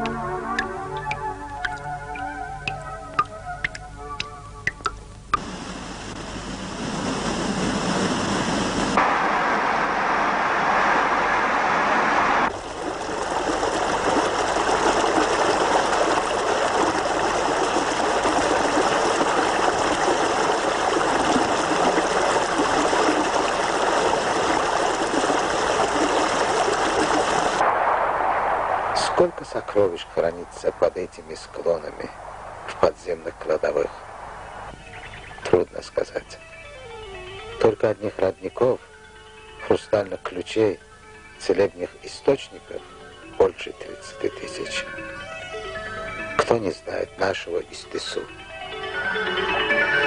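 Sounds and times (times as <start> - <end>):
stream water rushing: 5.4 - 27.7.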